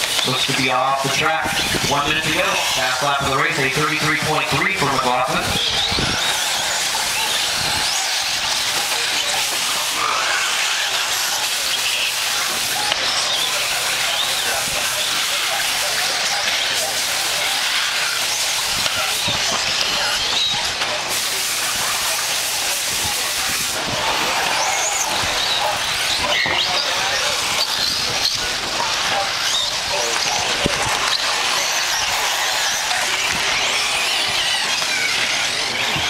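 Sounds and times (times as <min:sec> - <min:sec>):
model car engines whining: 0:00.0 - 0:36.0
steady hiss: 0:21.0 - 0:34.3.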